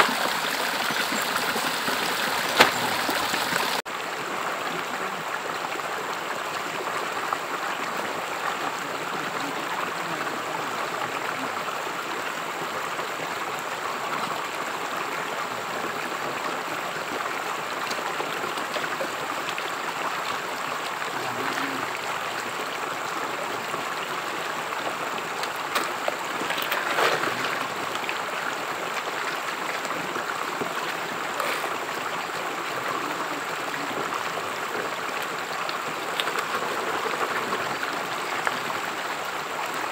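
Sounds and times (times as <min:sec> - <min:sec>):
water splashes: 0:00.0 - 0:11.6, 0:14.5 - 0:39.9
rocky stream running: 0:00.0 - 0:39.9
water sloshing over gravel: 0:01.6 - 0:03.8, 0:25.7 - 0:27.9.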